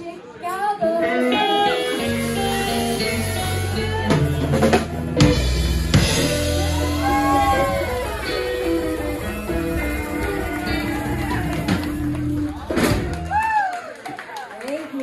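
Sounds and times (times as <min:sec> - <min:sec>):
blues band playing: 0:00.8 - 0:13.4
bass notes: 0:01.6 - 0:13.4.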